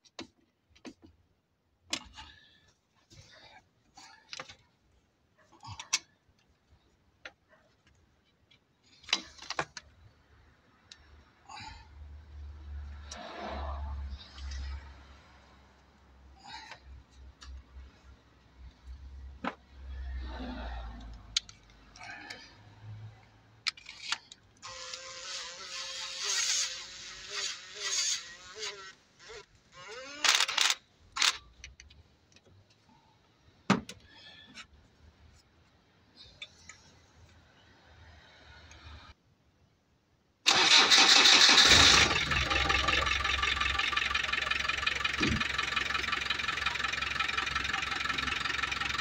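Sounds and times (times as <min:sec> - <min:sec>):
cordless driver whining: 0:23.8 - 0:31.3.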